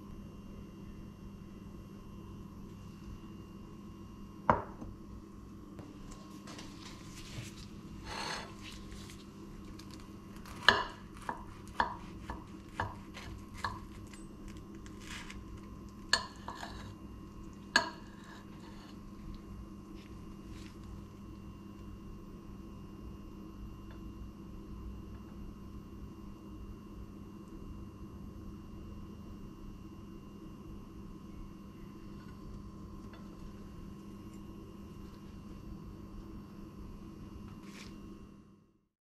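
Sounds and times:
faint steady hum: 0.0 - 38.9
cutlery clinking on a ceramic plate: 16.2 - 16.8.

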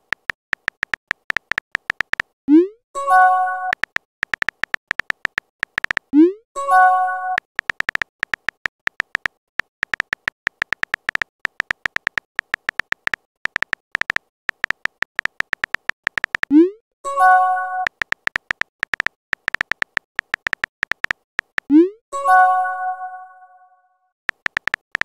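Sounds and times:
keyboard tap clicks: 0.0 - 2.3, 3.7 - 6.1, 7.3 - 16.5, 17.8 - 21.7, 24.3 - 25.0.

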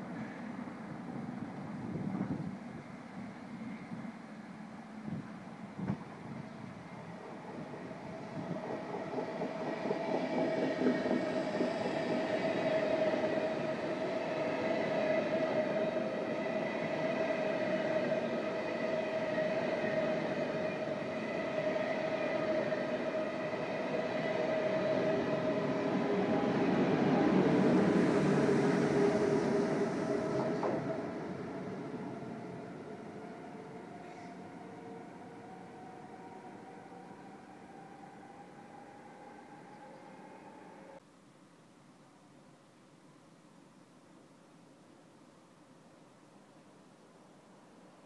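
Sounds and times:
train wheels rumbling on rails: 5.0 - 35.6.

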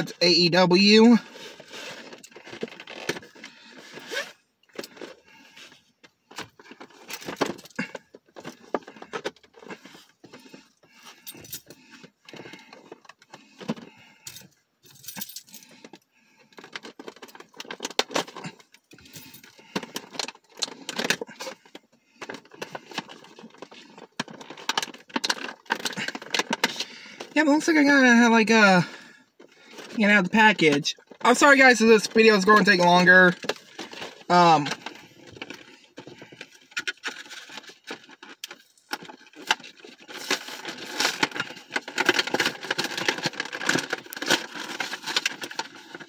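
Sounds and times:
packaging crinkling and cracking: 0.0 - 14.2, 15.7 - 27.7, 28.9 - 46.0
keys jangling and scraping: 9.8 - 11.8, 14.0 - 16.0.

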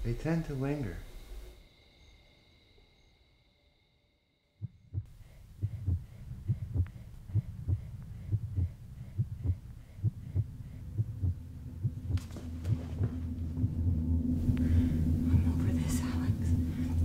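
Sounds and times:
low double-thump heartbeat: 4.6 - 17.0.

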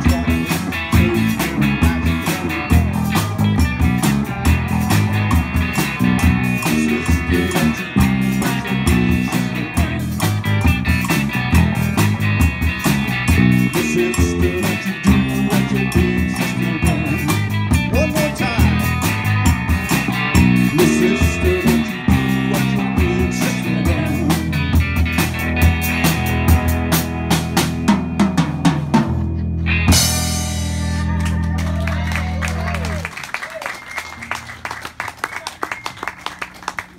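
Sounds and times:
rock band playing instrumental: 0.0 - 36.3.

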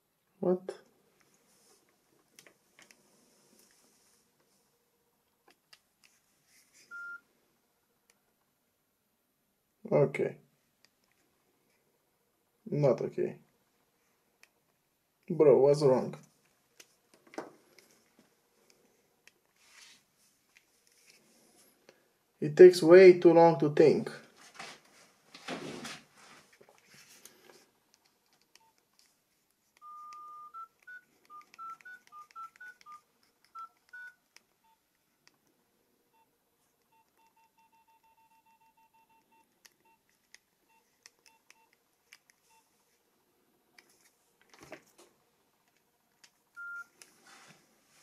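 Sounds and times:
phone electronic beeps: 6.9 - 7.2, 29.8 - 34.8, 36.9 - 40.0, 46.6 - 47.0.

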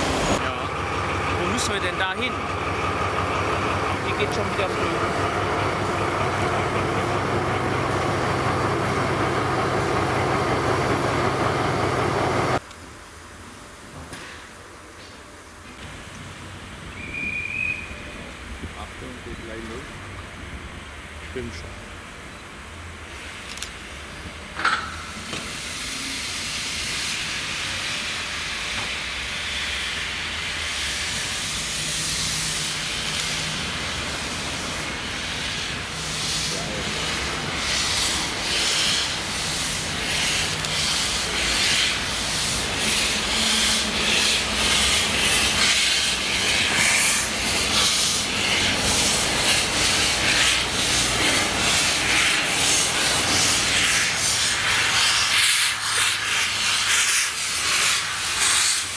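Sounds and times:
steam hissing: 0.0 - 12.6, 23.0 - 58.9
steam locomotive chuffing: 0.0 - 12.6, 25.0 - 58.9
steam locomotive whistle: 16.9 - 18.4, 41.3 - 51.0.

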